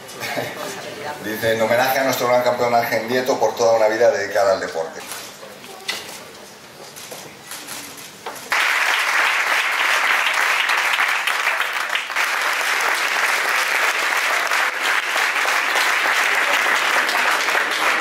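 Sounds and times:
audience applauding: 8.5s - 18.0s.

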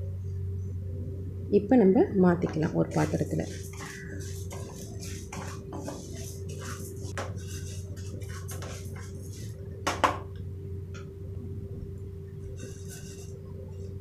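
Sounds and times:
steady low hum: 0.0s - 14.0s
spatula scraping metal pan: 2.9s - 9.6s, 12.4s - 13.9s.

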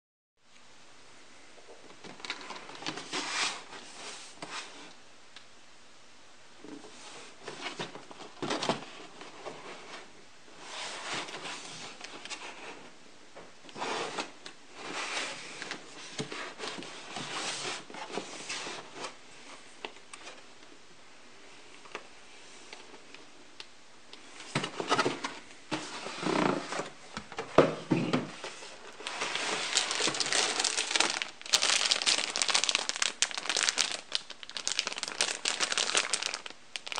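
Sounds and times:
plastic bags crinkling: 28.8s - 36.9s.

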